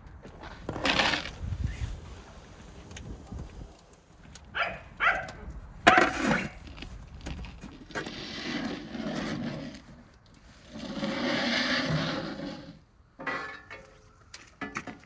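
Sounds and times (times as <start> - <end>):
metal lid scraping on pan: 10.9 - 13.9
metal lid clanking: 13.2 - 14.0.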